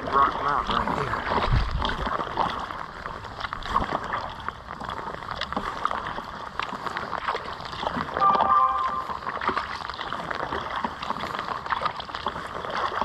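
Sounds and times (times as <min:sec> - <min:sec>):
small splashes and drips: 0:00.0 - 0:08.5, 0:09.2 - 0:13.0
paddle blades dipping in water: 0:00.0 - 0:13.0
water sloshing along hull: 0:00.0 - 0:13.0.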